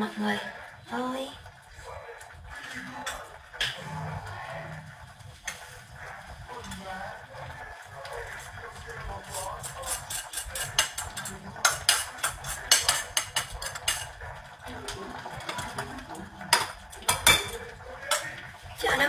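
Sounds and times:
kitchen utensils and dishes clattering: 8.0 - 19.0.

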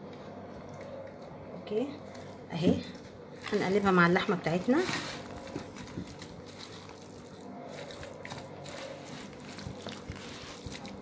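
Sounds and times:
spatula stirring wet mix: 3.0 - 11.0.

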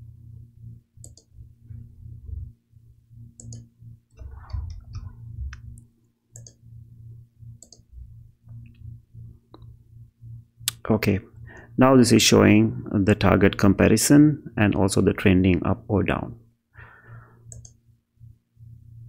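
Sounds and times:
low steady hum: 0.0 - 19.0
computer mouse clicking: 1.0 - 1.3, 3.4 - 6.6, 7.6 - 7.9, 17.5 - 17.8.

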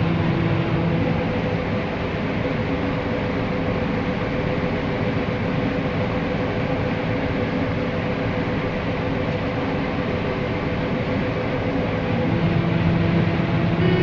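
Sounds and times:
low hum: 0.0 - 2.7, 11.4 - 14.0
combine harvester drone: 0.0 - 14.0.

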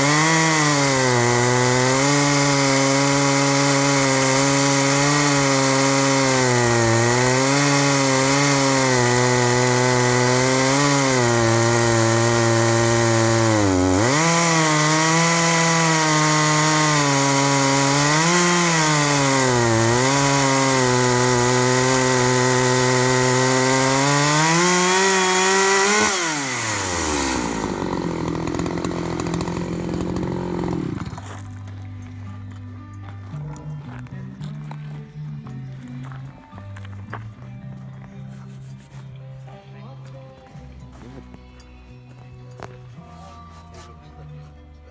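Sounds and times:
chainsaw cutting through log: 0.0 - 32.6.

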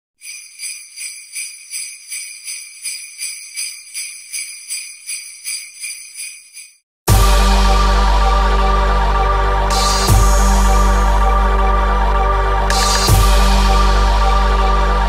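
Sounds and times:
jingle bells shaken: 0.2 - 6.8.

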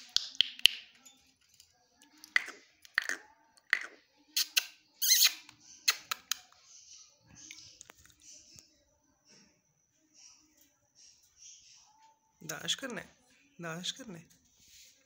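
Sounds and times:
parakeet chirping and clicking: 0.0 - 6.7.

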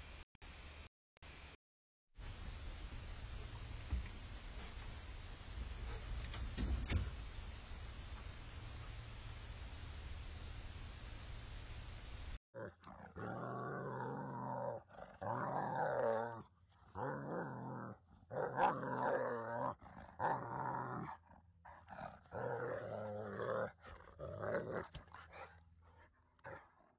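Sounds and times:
dog growling: 12.6 - 26.9.

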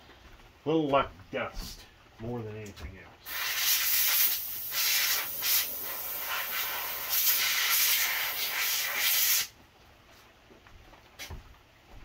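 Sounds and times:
compressed air blasts: 3.2 - 9.5.

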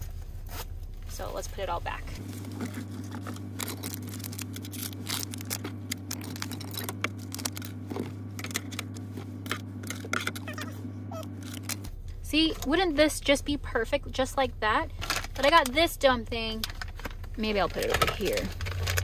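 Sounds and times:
rustling of packets: 2.2 - 11.8, 16.6 - 19.0
items clicking in glove box: 2.6 - 11.9, 16.5 - 19.0.

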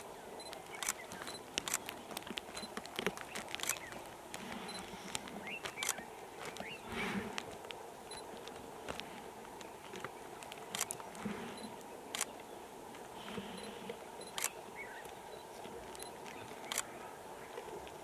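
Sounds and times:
steady low hiss: 0.0 - 18.0
sharp clicks: 0.4 - 9.0, 9.9 - 12.4, 13.6 - 14.6, 15.9 - 16.9.

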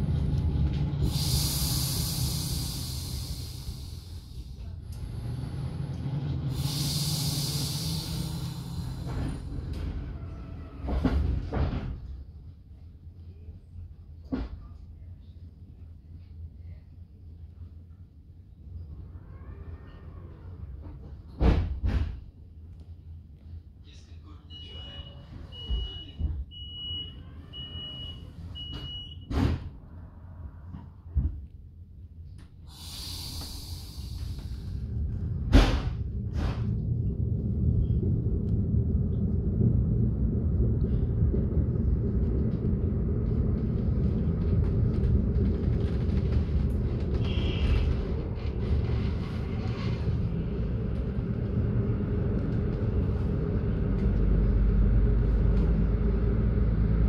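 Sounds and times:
train running rumble: 0.0 - 15.0, 18.9 - 22.4, 28.3 - 57.0
air hissing: 1.0 - 4.6, 6.5 - 9.5, 32.6 - 36.8
door warning beeps: 24.5 - 29.3.

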